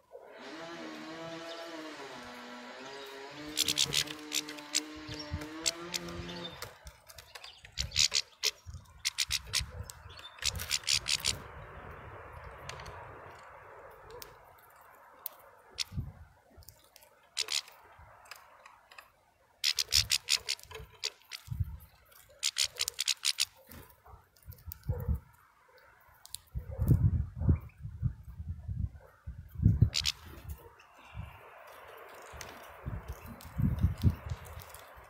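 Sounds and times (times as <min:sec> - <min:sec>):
bird pecking in seeds: 0:03.0 - 0:11.4, 0:16.6 - 0:25.1, 0:29.8 - 0:35.0.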